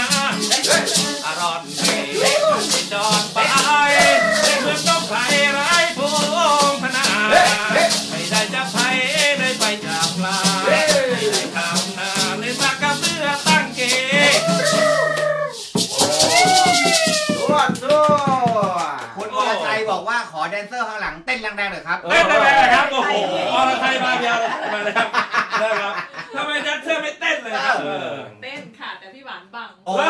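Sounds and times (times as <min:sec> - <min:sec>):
person singing: 0:00.0 - 0:17.7
strummed acoustic guitar: 0:00.0 - 0:18.6
maraca shaking: 0:00.0 - 0:19.5.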